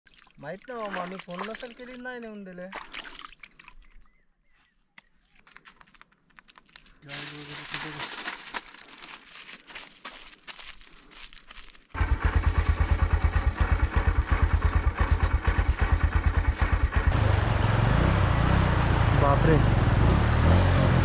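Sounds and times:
aluminium foil crinkling: 5.4s - 16.7s
motorcycle engine idling: 12.0s - 20.0s.

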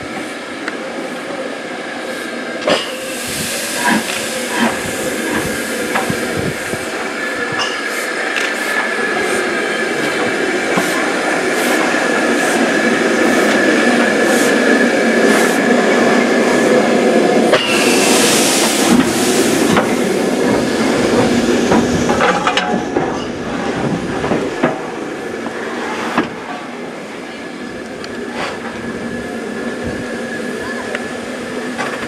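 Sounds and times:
steam hissing: 0.0s - 22.2s
steam locomotive running: 0.0s - 32.0s.

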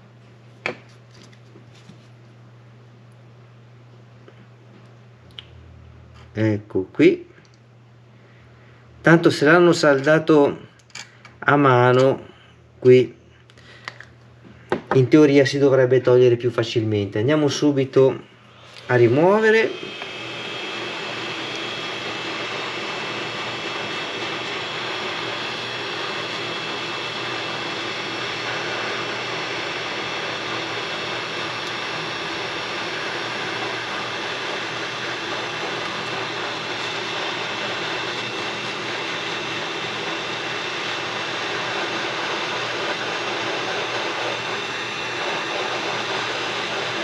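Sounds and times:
hot-air blower hissing: 17.4s - 47.0s.

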